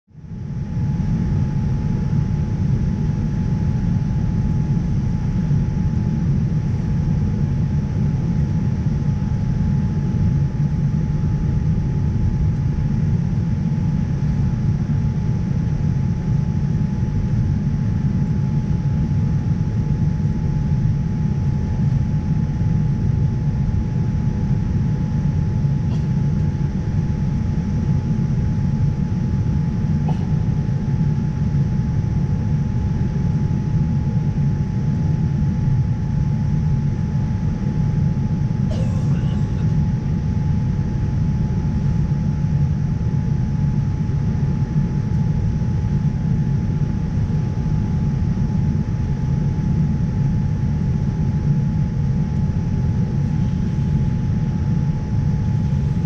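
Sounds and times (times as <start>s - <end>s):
thin steady whine: 0.2s - 56.0s
airliner cabin rumble: 21.3s - 31.9s, 37.3s - 44.1s, 50.5s - 56.0s.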